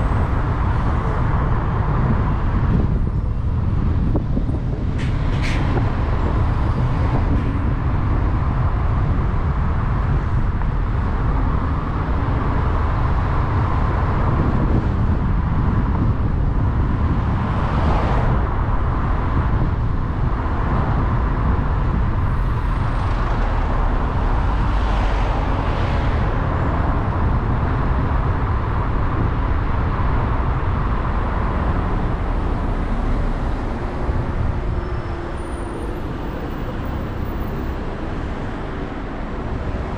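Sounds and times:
vehicle rumble in traffic: 0.0 - 39.9
vehicles passing: 0.0 - 39.9.

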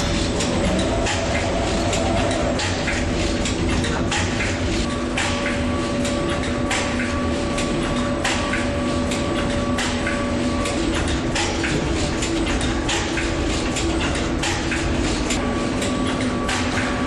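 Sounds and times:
machinery humming: 0.0 - 17.0
sharp mechanical clicks and clacks: 0.0 - 17.0.

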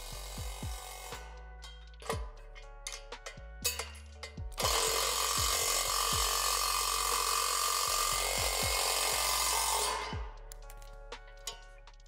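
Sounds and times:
background music with low beat: 0.0 - 12.0
impact driver running: 4.6 - 10.2.

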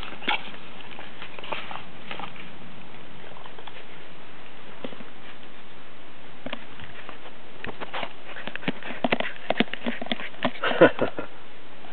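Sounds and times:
puppy splashing in water dish: 0.0 - 4.0.

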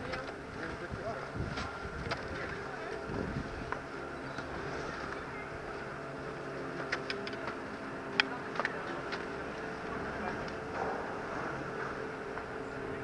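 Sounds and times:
chairlift machinery humming: 0.0 - 13.0.

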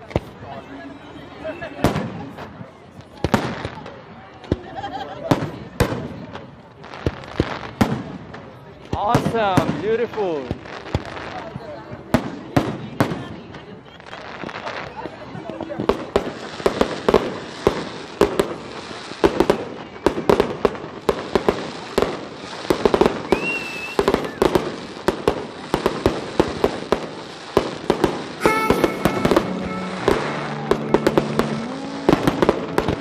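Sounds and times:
fireworks bangs and crackling: 0.0 - 0.6, 1.3 - 33.0
music: 28.4 - 33.0.

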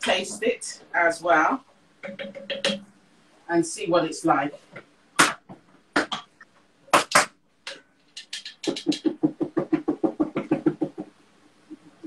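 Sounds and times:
spoon knocking against saucepan: 2.0 - 2.8.

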